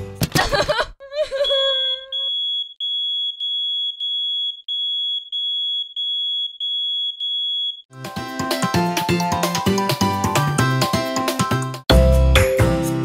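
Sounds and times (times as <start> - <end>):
electronic warning beep: 1.4 - 7.8
upbeat music: 7.9 - 13.0.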